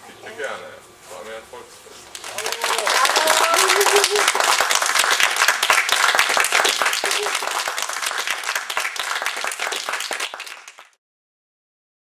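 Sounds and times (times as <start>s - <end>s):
children clapping: 2.1s - 11.0s.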